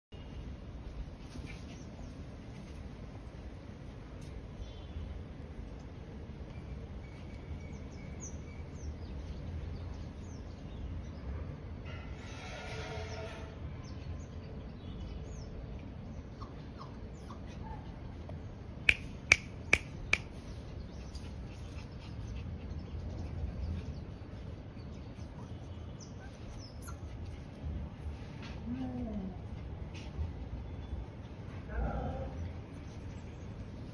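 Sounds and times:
small birds chirping: 5.7 - 11.2, 18.9 - 27.6.

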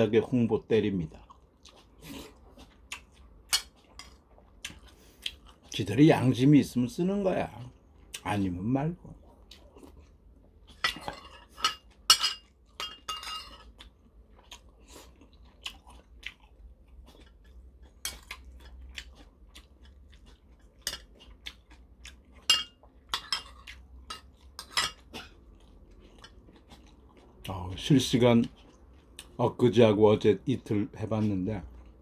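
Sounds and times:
person chewing: 1.0 - 5.9, 7.6 - 29.6, 30.6 - 32.0
spoon clinking in bowls: 11.1 - 13.7.

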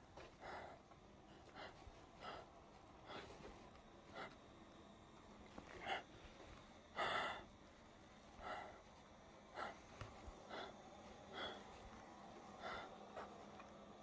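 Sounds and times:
person breathing in short breaths: 6.9 - 7.5, 8.3 - 13.4.

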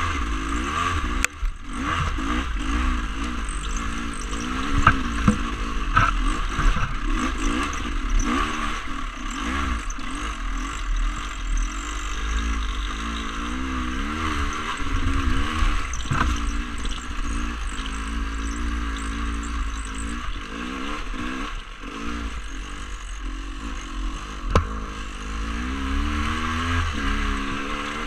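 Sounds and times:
dirt bike engine revving: 0.0 - 28.0
sharp knocks: 4.6 - 7.0, 24.5 - 24.8.

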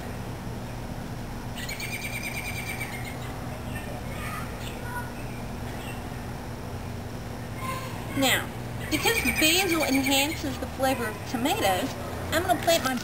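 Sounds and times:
low background hum: 0.0 - 13.0
bird trilling: 1.6 - 3.9, 8.8 - 10.6.

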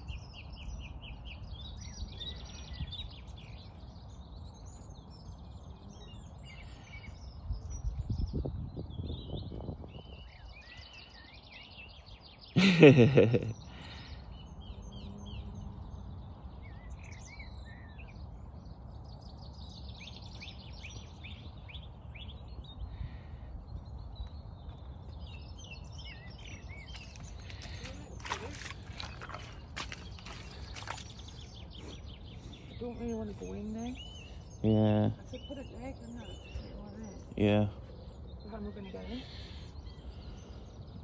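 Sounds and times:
birds chirping and singing: 0.0 - 41.0.

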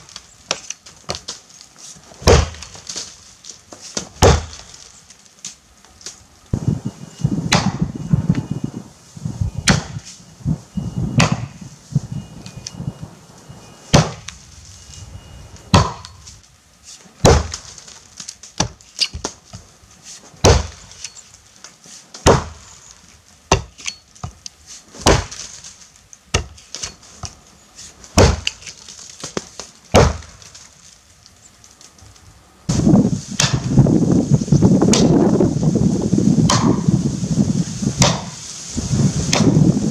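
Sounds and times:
axe chopping tree trunk: 2.2 - 3.1, 3.9 - 4.8, 7.5 - 7.8, 9.7 - 10.1, 11.2 - 11.5, 13.9 - 14.3, 15.7 - 16.2, 17.2 - 19.5, 20.4 - 21.2, 22.1 - 22.6, 23.5 - 24.4, 25.0 - 25.6, 26.3 - 27.4, 28.1 - 30.5, 33.3 - 33.7, 34.9 - 35.3, 36.5 - 36.8, 38.0 - 38.4, 39.3 - 39.6.

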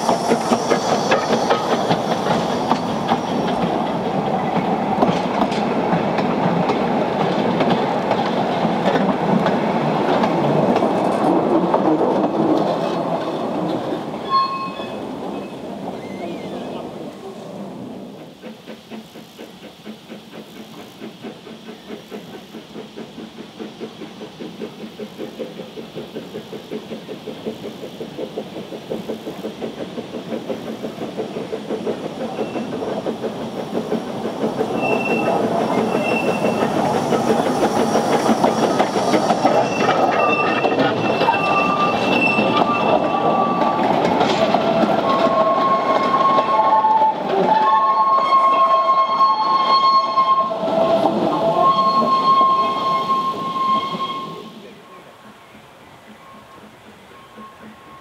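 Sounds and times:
steam locomotive exhaust beats: 0.0 - 58.0
train cars rumbling and clattering: 0.0 - 58.0
wheels squealing on curve: 14.1 - 17.0, 34.6 - 54.7.

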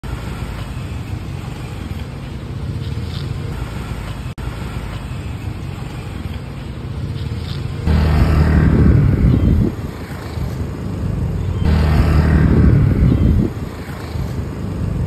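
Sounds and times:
light street traffic: 0.0 - 15.0
motor scooter engine idling: 5.1 - 15.0.

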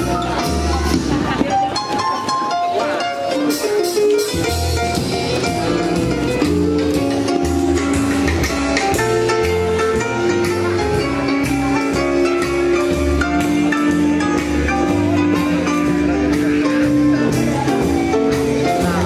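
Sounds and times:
low bass notes: 0.0 - 1.9, 4.2 - 19.0
drum kit: 0.0 - 19.0
guitar: 0.0 - 19.0.

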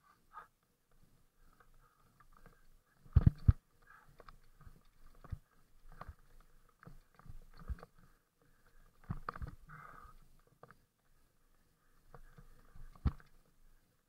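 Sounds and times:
camera rattling in housing: 3.1 - 3.6.

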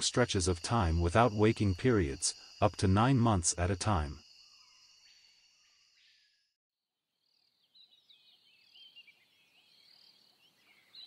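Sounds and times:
high insect drone: 0.0 - 6.1.

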